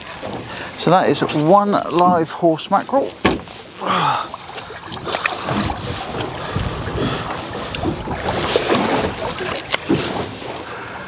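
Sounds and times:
water lapping against boat hull: 0.0 - 11.0
wind buffeting microphone: 4.7 - 10.5.

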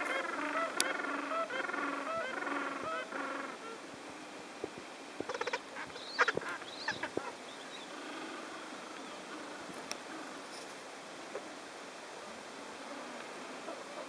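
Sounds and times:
penguins calling: 0.0 - 3.8.

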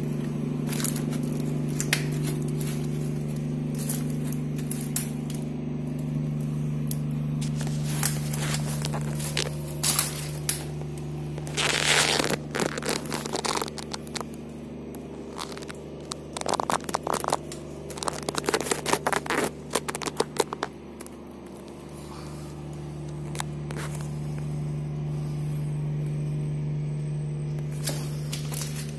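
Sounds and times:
steady low hum: 0.0 - 28.9
scrapes on gritty concrete floor: 7.3 - 22.7.

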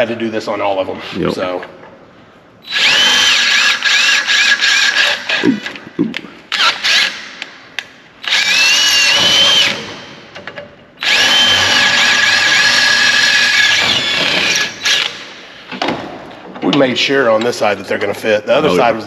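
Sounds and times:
cordless drill boring metal: 2.7 - 5.4, 8.2 - 9.9, 11.0 - 15.2
drill bit squealing: 2.7 - 5.4.

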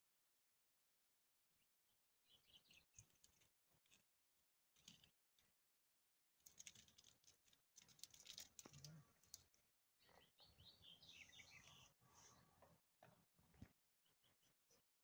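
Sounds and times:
faint high bird chirps: 10.0 - 12.5.

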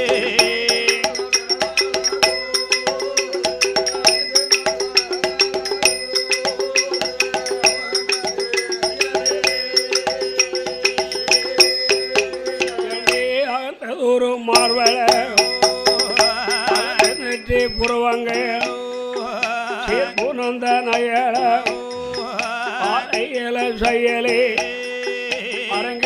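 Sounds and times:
wavering melodic line: 0.0 - 13.3
fast rattling percussion: 0.0 - 13.5, 14.6 - 26.0.

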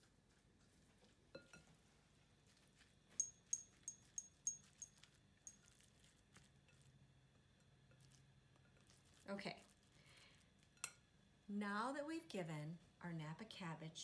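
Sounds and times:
spatula clinking against glass bowl: 3.2 - 5.8.

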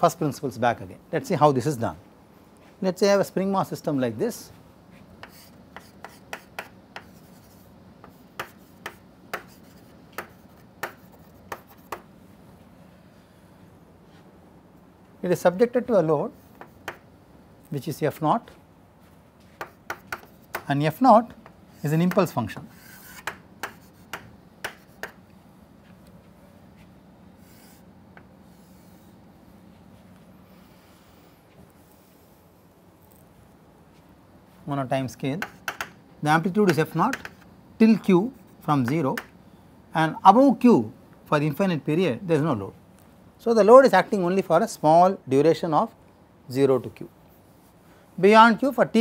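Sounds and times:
chalk tapping and scraping on chalkboard: 4.9 - 12.1, 16.4 - 17.1, 19.4 - 20.7, 21.3 - 25.2, 27.4 - 29.1, 35.4 - 36.0, 36.6 - 37.5.

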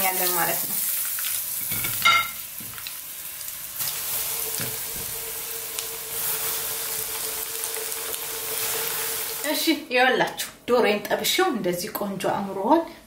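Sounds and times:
oil sizzling in frying pan: 0.0 - 9.6.

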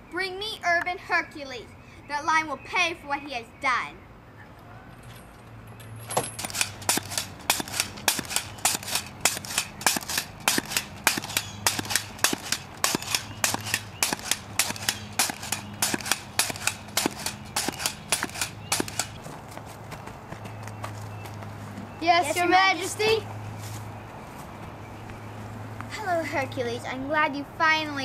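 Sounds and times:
pogo stick clacking on asphalt: 6.1 - 23.0.

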